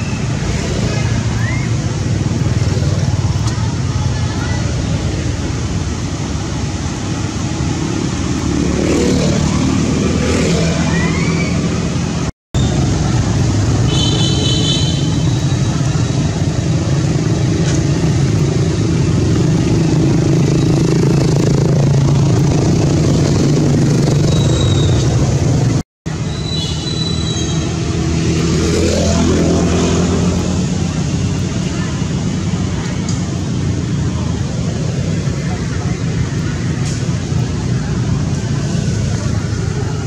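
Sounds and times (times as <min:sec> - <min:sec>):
motor engine humming: 0:15.3 - 0:25.8.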